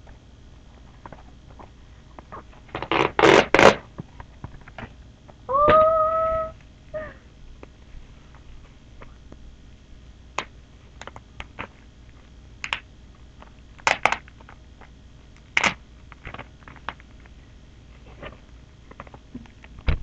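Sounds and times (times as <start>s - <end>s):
packaging clicks: 13.4s - 17.3s
packaging crinkling: 13.4s - 17.4s.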